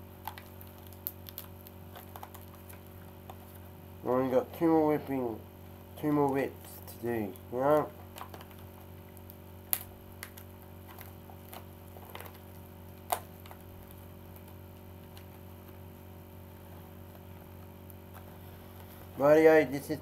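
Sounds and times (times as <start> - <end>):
parcel packaging crinkling: 0.0 - 3.8, 7.4 - 19.2
steady low hum: 0.0 - 20.0.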